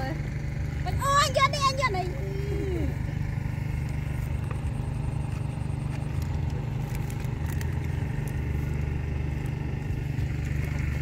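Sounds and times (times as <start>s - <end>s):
small engine droning: 0.0s - 11.0s.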